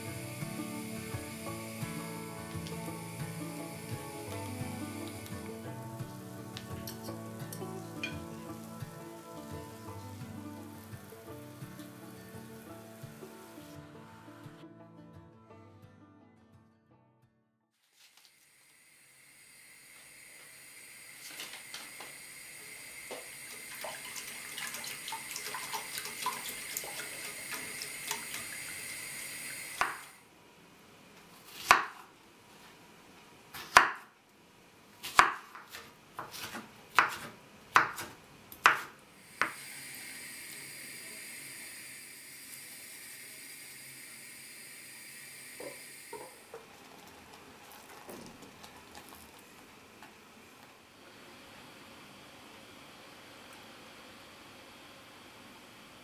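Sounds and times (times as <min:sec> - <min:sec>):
steady hiss with faint crackles: 0:17.8 - 0:24.0, 0:25.2 - 0:56.0
knife chopping on wooden board: 0:29.8 - 0:30.0, 0:31.5 - 0:32.0, 0:33.6 - 0:34.1, 0:35.0 - 0:39.6.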